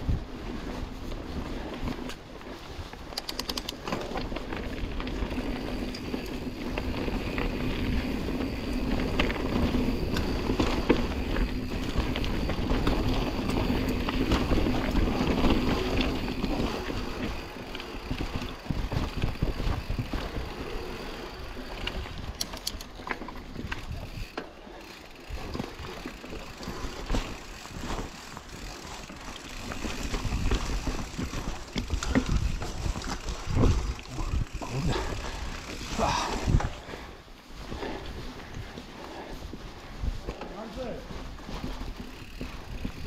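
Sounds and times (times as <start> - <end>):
bike rattling over bumps: 0.0 - 43.0
bike tyres rolling on dirt: 0.0 - 43.0.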